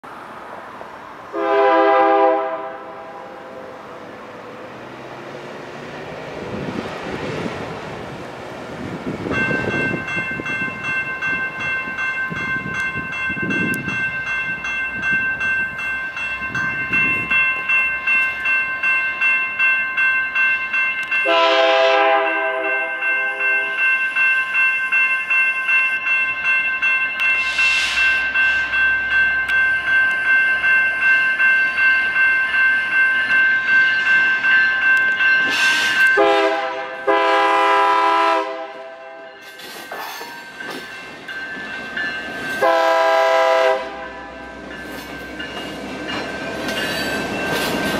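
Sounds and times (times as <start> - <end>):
freight locomotive approaching: 0.0 - 47.9
crossing warning bells ringing: 1.0 - 47.9
locomotive air horn blasts: 1.3 - 3.4, 21.2 - 23.7, 36.1 - 39.3, 42.6 - 44.1.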